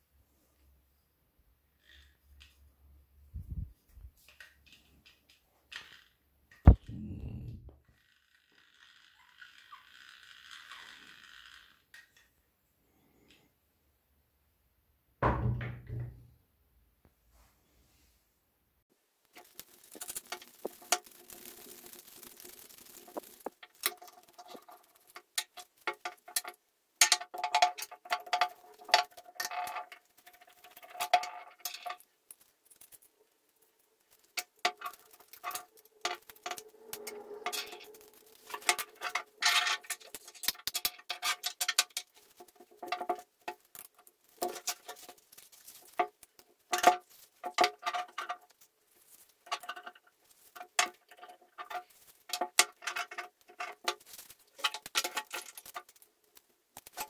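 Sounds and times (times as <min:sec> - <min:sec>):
hand drill gears clicking: 0:07.9 - 0:11.9, 0:19.4 - 0:25.9
small metal parts clinking: 0:19.4 - 0:48.6.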